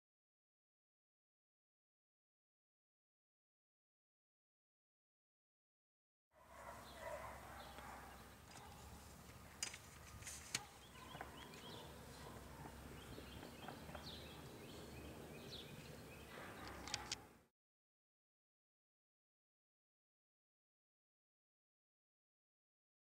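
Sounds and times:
small bird chirps: 10.6s - 17.2s
sharp clicks: 16.6s - 17.2s.

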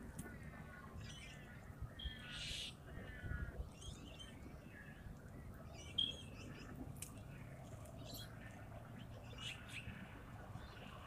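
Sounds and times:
birds chirping and whistling: 1.0s - 4.4s, 5.7s - 6.7s.

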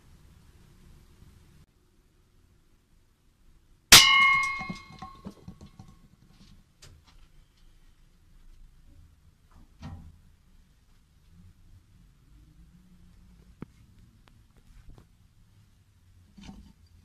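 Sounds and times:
pellet clanging on metal target: 3.9s - 5.9s.

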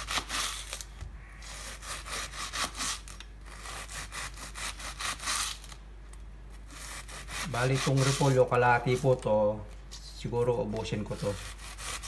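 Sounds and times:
knife slicing cabbage: 0.0s - 0.8s, 1.4s - 5.8s, 6.6s - 9.2s, 11.0s - 12.0s.

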